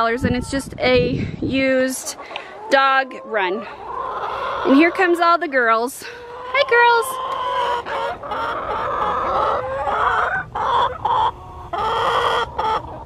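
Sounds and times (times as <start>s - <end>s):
hens clucking: 0.0s - 13.0s.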